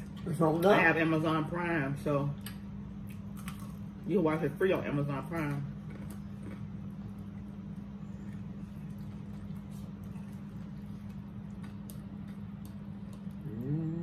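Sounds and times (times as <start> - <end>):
low hum: 1.2 - 14.0
chewing: 5.8 - 7.5.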